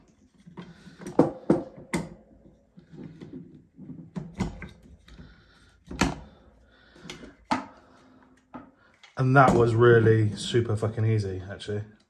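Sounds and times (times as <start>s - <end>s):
plastic and metal parts clicking: 8.4s - 9.2s.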